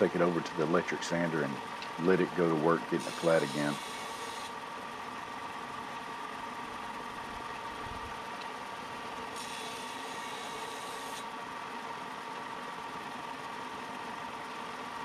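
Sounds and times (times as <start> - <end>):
belt sander motor whine: 2.0 - 4.6, 8.8 - 13.1
steel grinding hiss: 2.9 - 4.5, 9.4 - 11.2.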